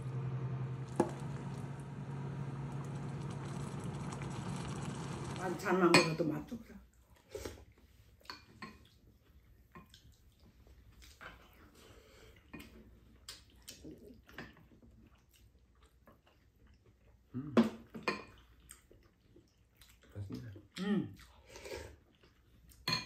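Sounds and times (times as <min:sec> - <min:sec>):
slurping: 0:00.1 - 0:05.6
quiet chewing: 0:06.9 - 0:17.6, 0:18.2 - 0:22.9.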